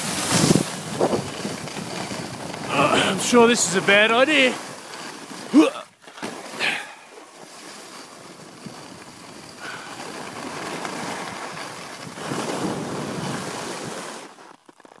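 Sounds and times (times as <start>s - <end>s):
wind on microphone: 0.0s - 4.0s, 11.1s - 14.1s
skis hissing over snow: 0.0s - 15.0s.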